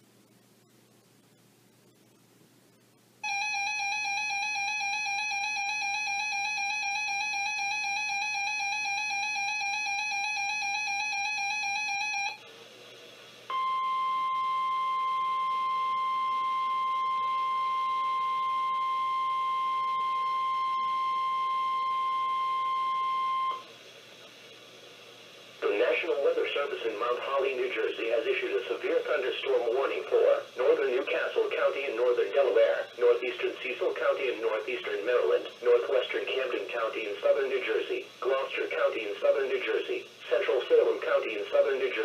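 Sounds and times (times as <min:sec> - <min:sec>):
buzzy electronic alarm: 0:03.2 - 0:12.4, 0:13.5 - 0:23.7
steady pure alarm tone: 0:03.2 - 0:12.5, 0:13.5 - 0:23.7.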